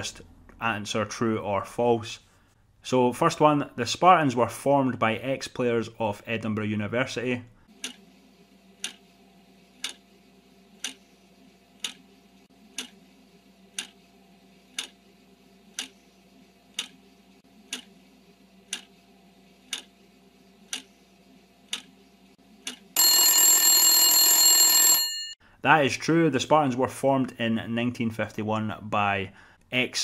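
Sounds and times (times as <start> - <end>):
clock ticking: 8.8 - 9.0, 9.8 - 10.0, 10.8 - 11.0, 11.8 - 12.0, 12.7 - 13.0, 13.7 - 14.0, 14.7 - 15.0, 15.7 - 16.0, 16.7 - 17.0, 17.7 - 17.9, 18.7 - 18.9, 19.7 - 19.9, 20.7 - 20.9, 21.7 - 21.9
alarm bell ringing: 23.0 - 25.4.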